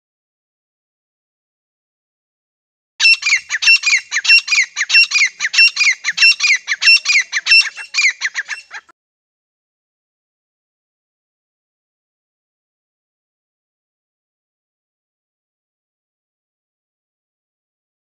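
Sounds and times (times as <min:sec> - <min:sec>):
bird calling shrilly: 0:03.0 - 0:08.9.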